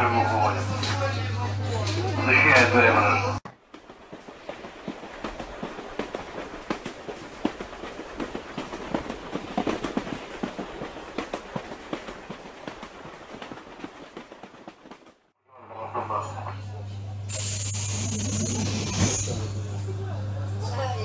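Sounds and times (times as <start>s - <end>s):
train rolling rumble: 0.0s - 21.0s
wheels clicking and rattling: 3.5s - 15.3s.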